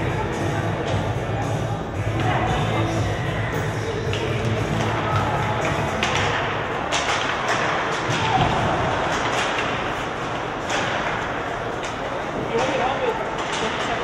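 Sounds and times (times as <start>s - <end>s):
arena crowd hubbub: 0.0s - 14.0s
hockey sticks and puck knocking boards: 4.0s - 14.0s.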